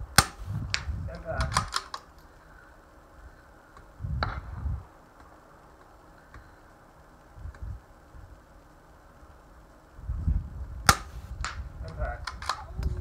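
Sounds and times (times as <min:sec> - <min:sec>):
suppressed rifle shot: 0:00.1 - 0:02.0, 0:04.2 - 0:04.6, 0:10.8 - 0:12.6
low thumps: 0:04.0 - 0:04.9.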